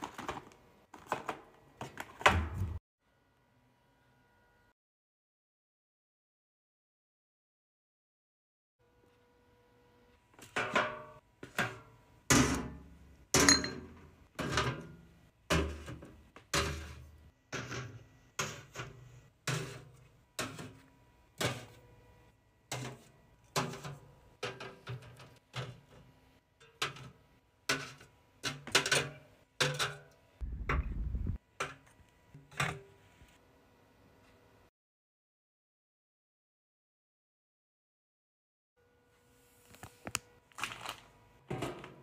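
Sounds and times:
low rumble: 30.4 - 31.4.

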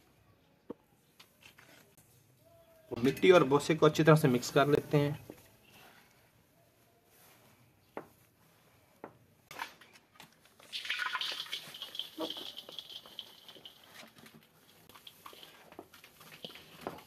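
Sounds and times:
hands rustling dry straw: 5.4 - 9.0, 11.2 - 17.0.

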